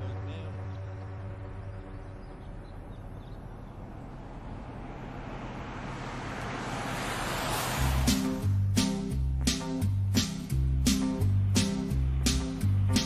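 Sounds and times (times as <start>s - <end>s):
vehicle engine and tyres rushing: 0.0s - 13.0s
music with deep bass and beats: 8.0s - 13.0s.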